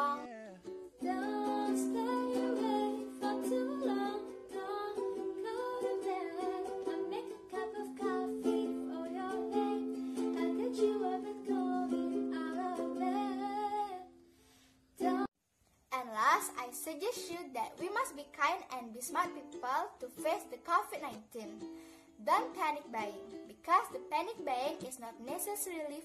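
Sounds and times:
ukulele strumming chords: 0.0s - 14.0s, 15.0s - 15.3s, 19.0s - 25.4s
girl singing: 0.0s - 14.2s, 15.0s - 15.3s, 15.9s - 26.0s.

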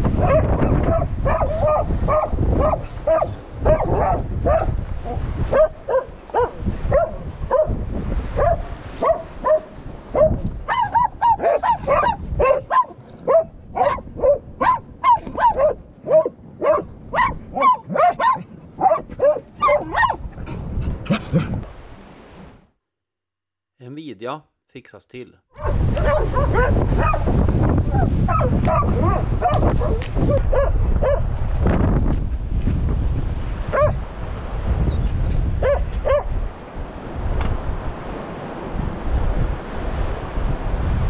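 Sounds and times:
dog barking: 0.2s - 7.8s, 8.4s - 20.2s, 25.6s - 27.3s, 27.9s - 31.3s, 33.7s - 34.0s, 35.6s - 36.3s.

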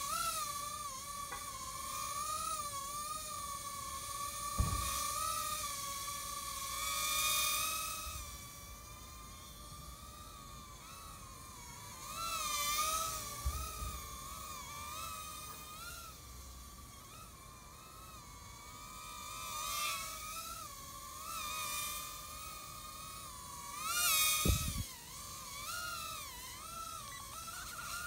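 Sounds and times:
drone motors whining: 0.0s - 28.0s
low thump: 4.6s - 5.0s.

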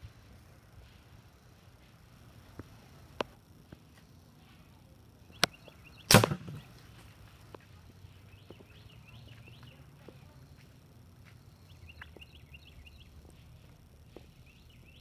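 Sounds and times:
air rifle shot: 6.1s - 6.6s.

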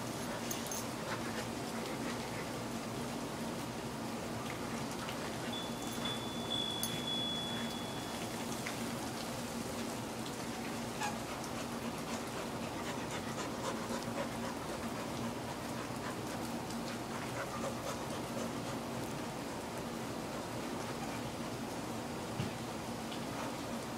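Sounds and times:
low steady hum: 0.0s - 21.9s
small clicks and rustles: 0.1s - 2.5s
dog panting: 0.1s - 2.7s, 11.0s - 18.9s
thin high tone: 5.5s - 8.6s.

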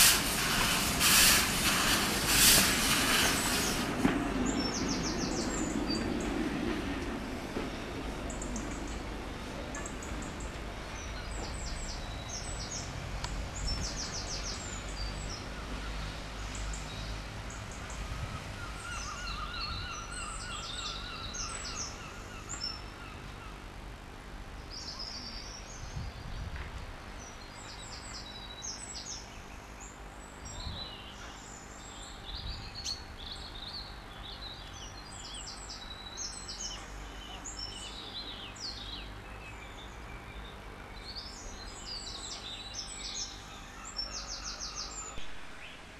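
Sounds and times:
small birds chirping: 3.4s - 6.4s, 9.6s - 23.5s, 27.2s - 45.9s.

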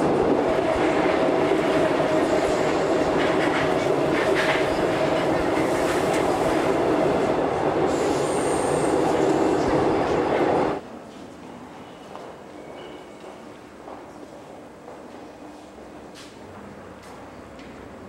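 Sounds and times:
train rumbling and rattling: 0.0s - 10.8s.

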